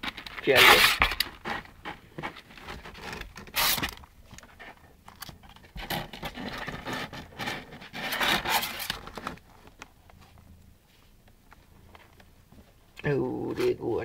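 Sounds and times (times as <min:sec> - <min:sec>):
scraping on cardboard: 0:05.7 - 0:09.3.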